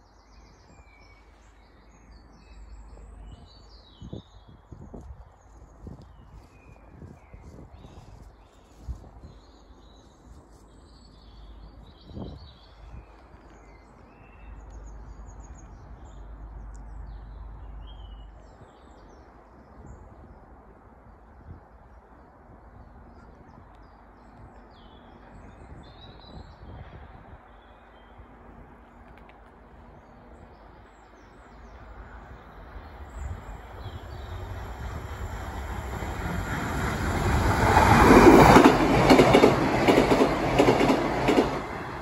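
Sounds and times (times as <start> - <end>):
wind rumble on microphone: 2.4 - 29.2, 31.6 - 42.0
small birds chirping: 30.9 - 42.0.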